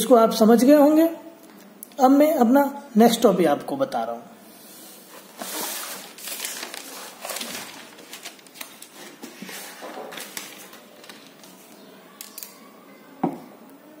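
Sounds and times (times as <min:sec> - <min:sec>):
paper rustling: 0:05.1 - 0:11.9.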